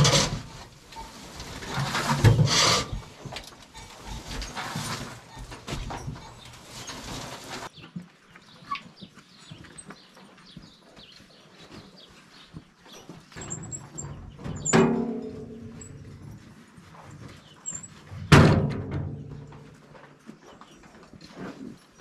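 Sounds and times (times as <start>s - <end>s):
fork scraping silage: 0.0s - 5.6s, 6.2s - 7.7s.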